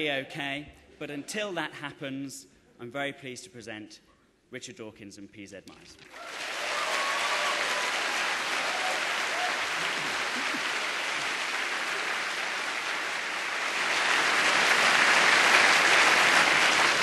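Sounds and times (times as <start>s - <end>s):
audience applauding: 6.0s - 17.0s.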